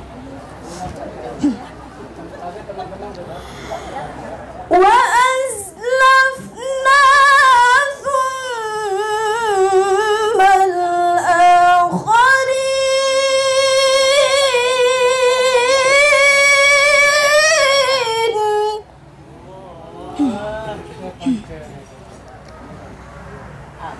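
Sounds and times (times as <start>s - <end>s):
woman reciting melodically: 4.7s - 19.6s, 20.2s - 21.5s.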